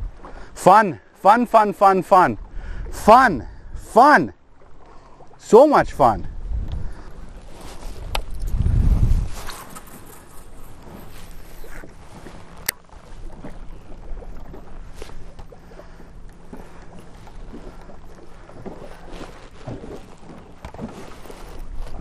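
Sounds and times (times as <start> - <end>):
wind buffeting microphone: 0.0 - 0.4, 5.8 - 22.0
waves lapping against boat hull: 0.0 - 22.0.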